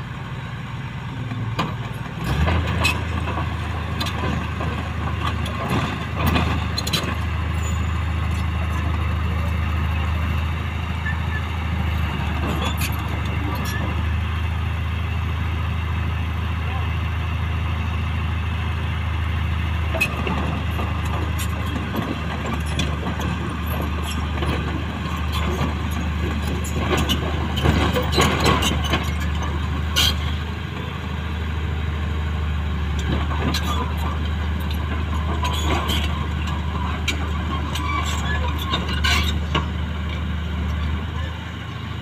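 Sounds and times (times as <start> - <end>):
bulldozer diesel engine: 0.0 - 42.0
metal track clanks: 1.4 - 10.4, 11.0 - 14.2, 19.9 - 31.0, 33.0 - 41.0.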